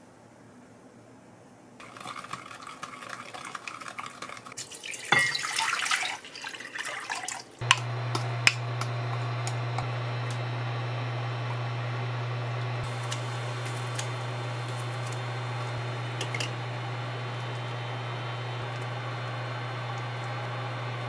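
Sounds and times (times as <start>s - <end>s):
cooktop low hum: 1.7s - 6.9s, 7.5s - 21.0s
water pouring into pot: 1.8s - 7.8s, 12.8s - 21.0s.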